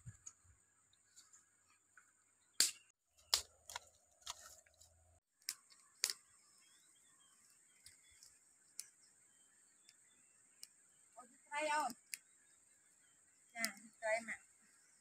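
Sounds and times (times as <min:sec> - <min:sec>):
dry sticks snapping: 0:02.6 - 0:06.2.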